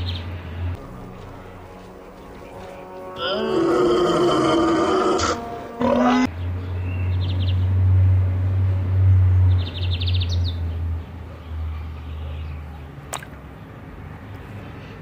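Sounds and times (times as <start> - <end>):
steady low rumble: 0.6 - 3.2
small birds chirping: 9.5 - 15.0.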